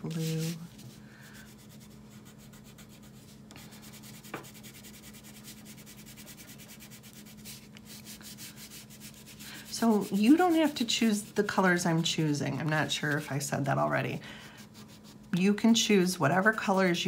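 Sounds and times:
crayon rubbing on paper: 0.1 - 11.9, 14.5 - 15.3.

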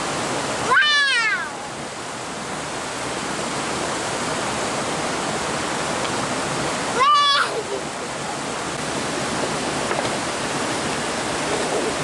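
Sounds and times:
water rushing over rocks: 0.0 - 12.0
child squealing: 0.7 - 1.6, 7.0 - 7.6.

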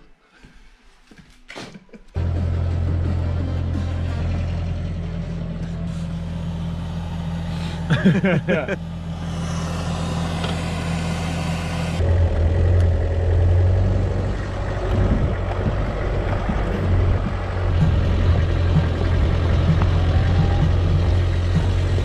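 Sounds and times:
engine idling: 2.2 - 22.0
vehicle driving on gravel track: 12.0 - 22.0.

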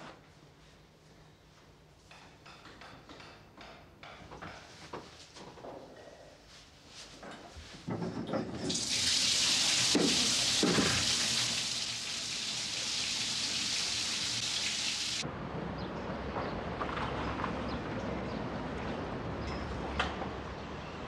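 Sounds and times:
bath tap running into bathtub: 8.7 - 15.2.

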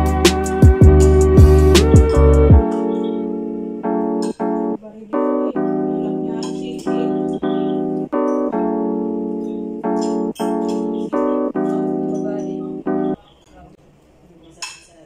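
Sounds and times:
keyboard tune: 0.0 - 13.4.

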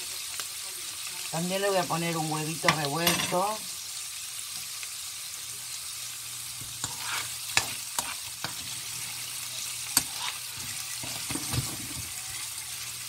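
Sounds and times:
food sizzling in frying pan: 0.0 - 13.0
spoon scraping pan: 6.6 - 12.6.

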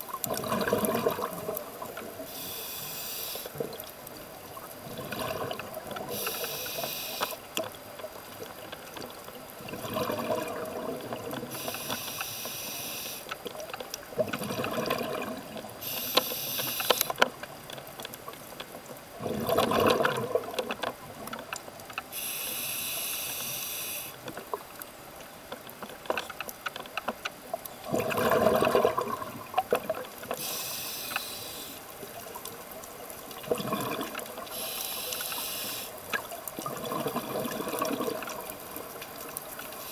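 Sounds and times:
gurgling exhaled bubbles: 0.0 - 2.3, 3.5 - 6.3, 9.6 - 11.6, 14.1 - 15.9, 19.2 - 20.8, 27.8 - 30.3, 32.1 - 34.6, 36.2 - 39.9
faint clicks and crackles: 0.0 - 39.9
hissing regulator inhale: 2.2 - 3.6, 6.1 - 7.4, 11.5 - 13.4, 15.8 - 17.2, 22.1 - 24.2, 30.4 - 31.9, 34.5 - 36.0.

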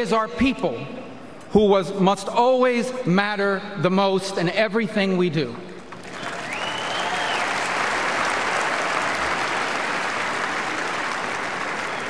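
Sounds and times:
audience applauding: 5.9 - 12.0
faint high whistle: 6.5 - 7.5.

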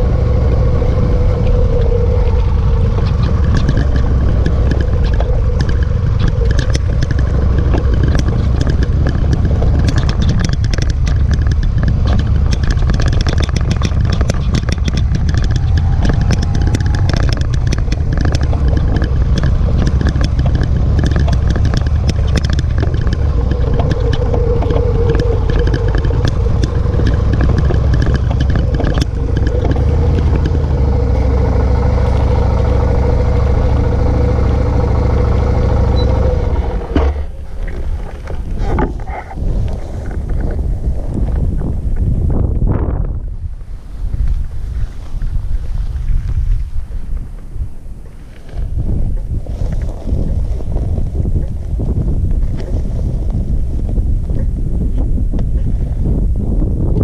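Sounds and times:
motorcycle engine running: 0.0 - 57.0
wind rumble on microphone: 0.0 - 57.0
clattering knocks from motorcycle: 3.0 - 39.2.

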